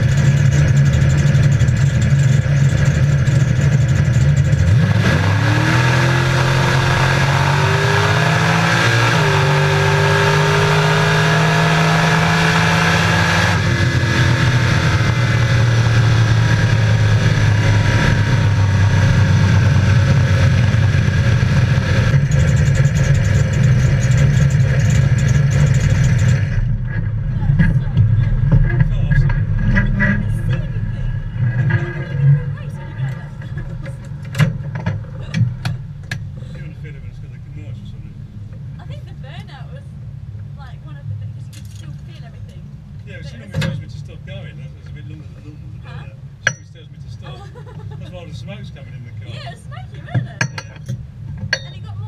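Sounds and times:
car engine accelerating: 0.0 - 39.6.

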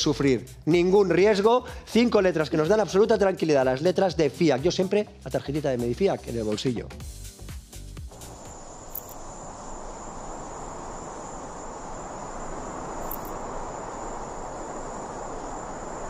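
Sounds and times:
background hiss: 0.0 - 6.2, 7.0 - 16.0
crickets chirring: 8.1 - 16.0.

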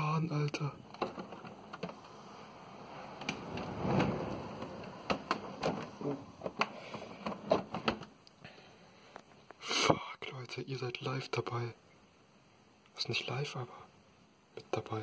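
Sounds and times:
storm wind gusts: 1.3 - 6.6
sharp knocks and rattles: 3.1 - 8.1.

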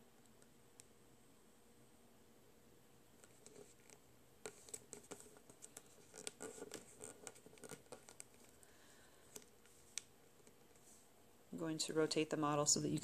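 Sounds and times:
paper crinkling and clicking: 3.2 - 8.6.

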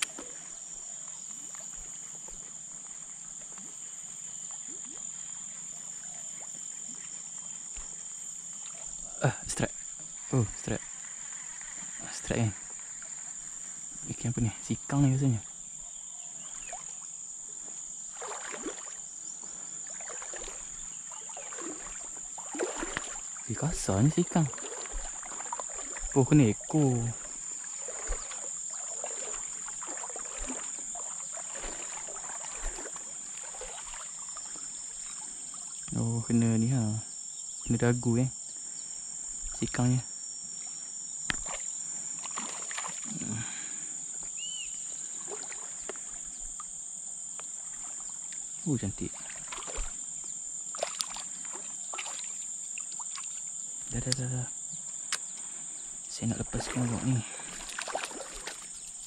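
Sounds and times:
shallow water splashing: 0.0 - 14.0, 16.4 - 17.2, 17.9 - 35.9, 40.5 - 43.9, 44.9 - 46.8, 47.5 - 54.3, 55.0 - 59.0
high insect buzz: 0.0 - 59.0
fish splashing at surface: 18.1 - 19.0, 19.9 - 23.2, 24.5 - 26.1, 27.2 - 34.6, 42.2 - 43.2, 49.2 - 50.0, 50.8 - 52.4, 56.6 - 58.8.

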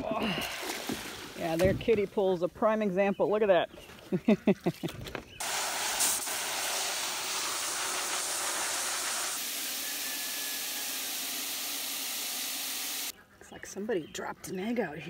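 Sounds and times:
hose nozzle spraying water: 5.4 - 13.1.

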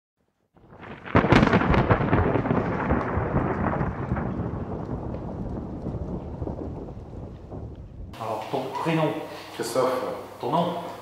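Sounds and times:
thunder crack and rumble: 0.6 - 8.2.

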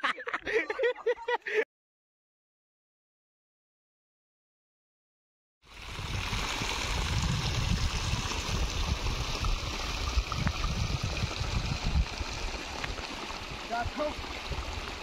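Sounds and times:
wind buffeting microphone: 5.8 - 15.0.

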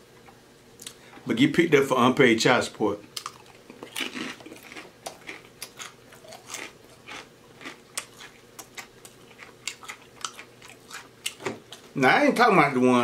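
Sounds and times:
person chewing food: 3.1 - 12.0.

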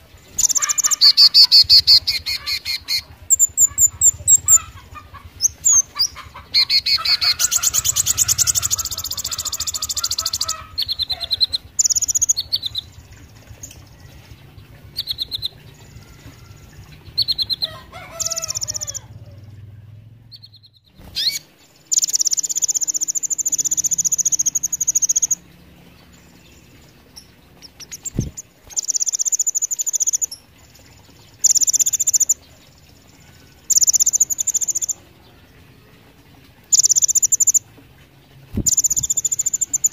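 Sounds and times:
bird twittering and trilling: 0.2 - 37.7, 38.5 - 39.9.

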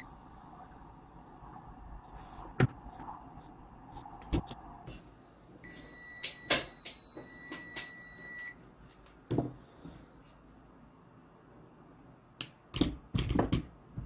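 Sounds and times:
multimeter continuity beep: 5.6 - 8.6.

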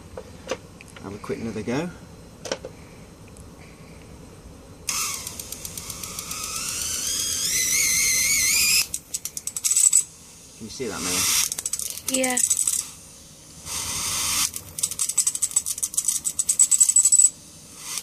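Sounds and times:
electric arc crackling with whine: 4.8 - 18.0
sharp electric snaps: 4.9 - 10.1, 10.9 - 13.0, 13.6 - 18.0.

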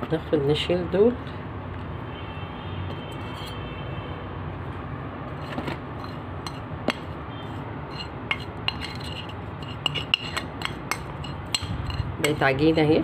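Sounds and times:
spoon scraping a ceramic plate: 2.9 - 3.7, 5.4 - 6.7, 7.4 - 12.8.

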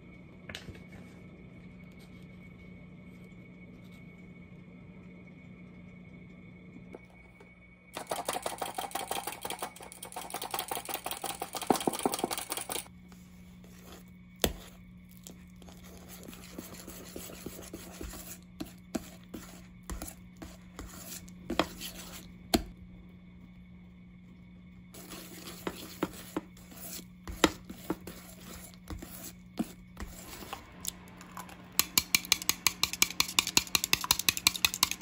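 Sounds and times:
whisk clinking against bowl: 8.0 - 12.9, 31.8 - 35.0
whisk scraping metal bowl: 8.0 - 12.9, 15.7 - 22.3, 25.0 - 30.7, 31.8 - 35.0.

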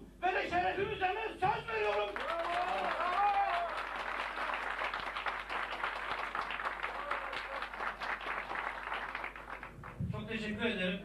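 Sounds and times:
audience applauding: 1.7 - 10.0.

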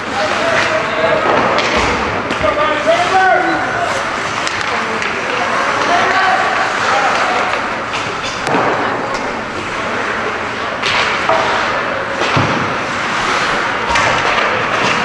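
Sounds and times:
puck and sticks banging boards: 0.1 - 9.6, 10.8 - 15.0.

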